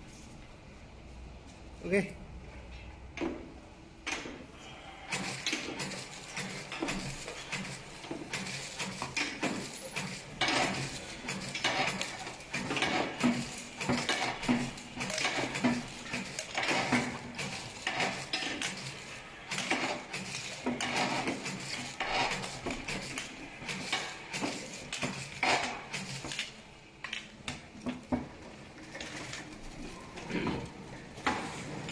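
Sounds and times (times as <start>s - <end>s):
clattering machine stroke: 4.1s - 26.6s.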